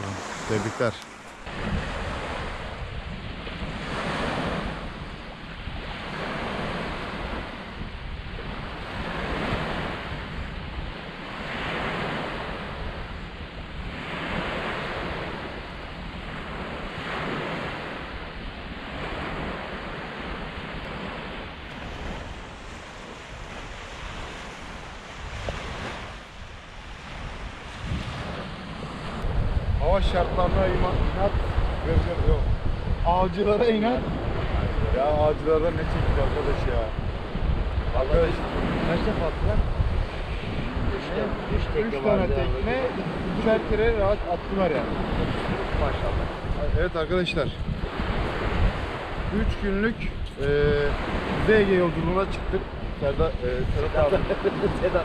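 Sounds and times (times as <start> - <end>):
waves breaking on sandy beach: 0.0 - 55.0
wind rumbling on microphone: 0.0 - 55.0.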